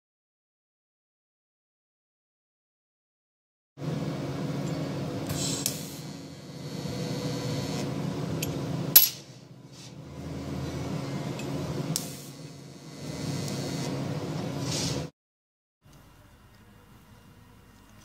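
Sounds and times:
welding arc buzzing: 4.4s - 9.4s, 10.1s - 15.1s.

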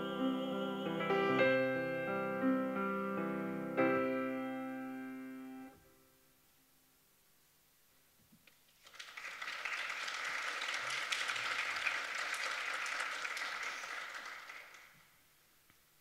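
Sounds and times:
piano piece: 0.0s - 5.9s
audience applauding: 8.8s - 15.2s.

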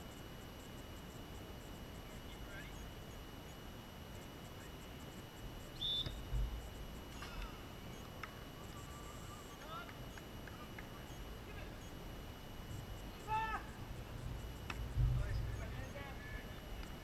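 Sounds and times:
referee's whistle blast: 5.8s - 6.2s
low thump: 14.7s - 15.4s.

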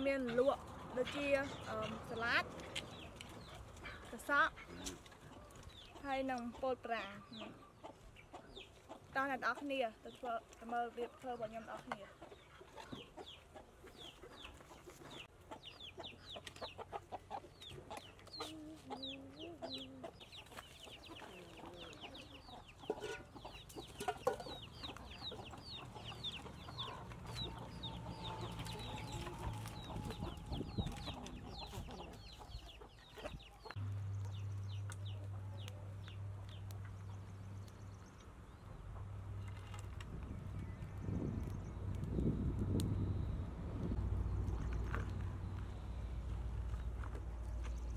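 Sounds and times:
chickens clucking: 0.0s - 39.9s.

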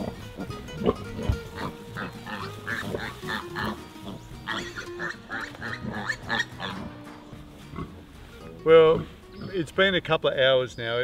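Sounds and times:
background music: 0.0s - 11.0s
piglet squealing: 0.8s - 3.8s, 4.4s - 6.9s.

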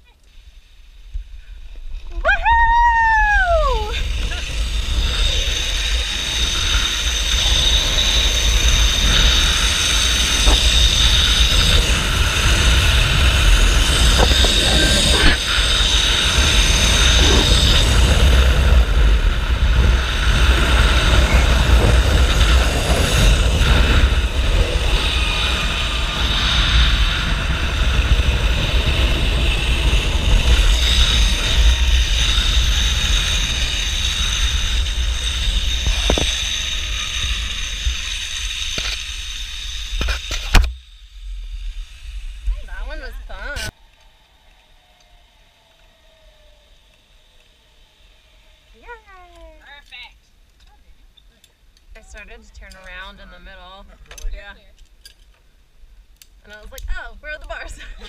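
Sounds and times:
pulley wheels whining on cable: 0.0s - 50.0s
wind buffeting microphone: 1.9s - 40.7s.

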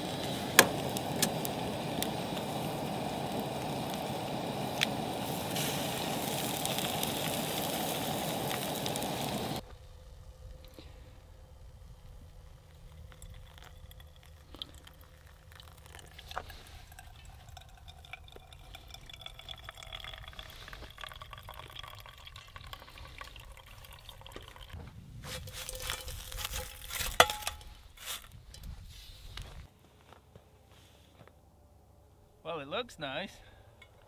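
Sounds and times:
hiss and clatter: 0.0s - 9.6s
hot water trickling onto coffee: 0.0s - 9.6s, 11.6s - 27.6s.

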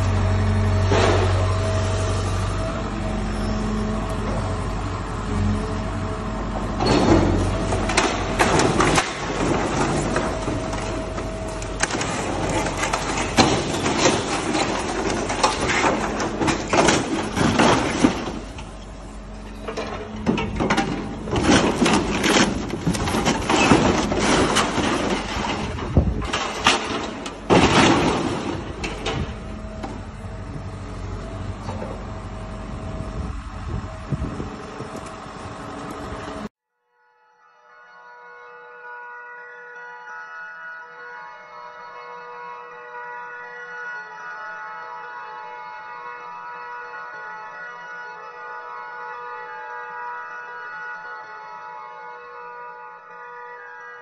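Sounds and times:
metal crunching and clattering: 0.0s - 2.6s, 5.8s - 36.5s
diesel excavator engine running: 0.0s - 36.5s
machine whine: 0.0s - 36.5s
metal and glass crashing: 6.8s - 30.0s.

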